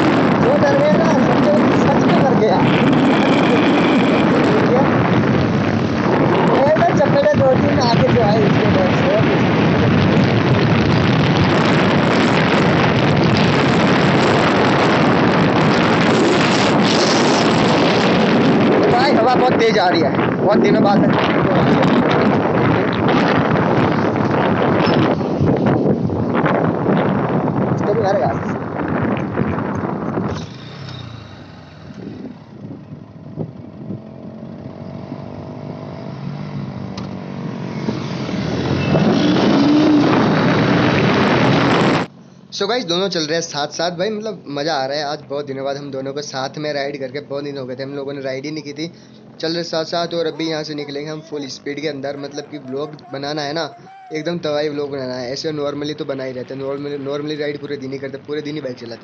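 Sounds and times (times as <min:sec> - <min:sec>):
motorcycle engine: 0:00.0 - 0:19.4, 0:28.5 - 0:42.1
wind buffeting microphone: 0:00.0 - 0:42.5, 0:48.3 - 0:59.0.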